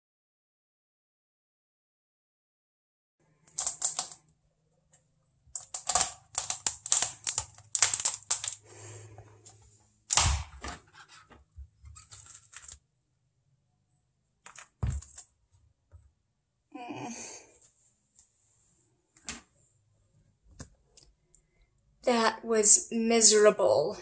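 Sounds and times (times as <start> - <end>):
squash rind cracking and tearing: 3.6 - 4.2, 5.6 - 8.7, 10.1 - 10.7.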